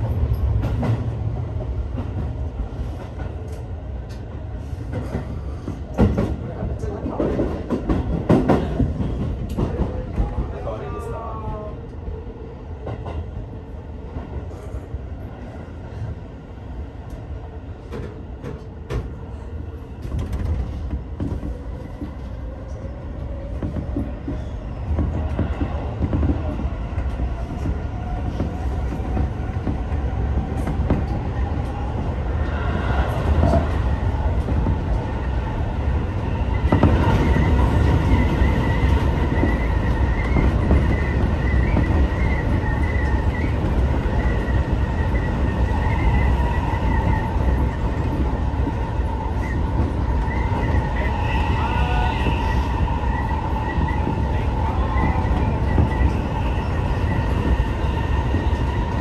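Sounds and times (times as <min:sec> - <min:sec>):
train wheels rumbling on rail: 0:00.0 - 0:59.0
wheel squeal on track: 0:50.2 - 0:58.7.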